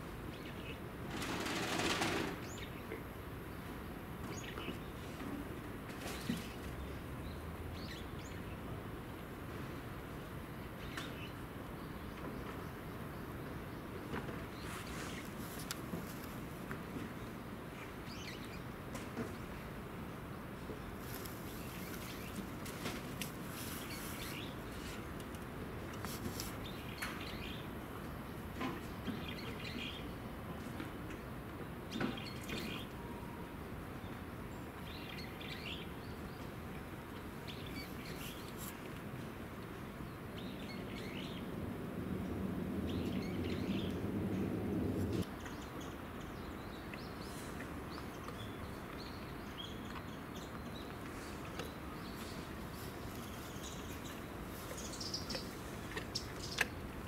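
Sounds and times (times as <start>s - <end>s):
small birds chirping: 20.7s - 25.1s, 34.0s - 57.0s.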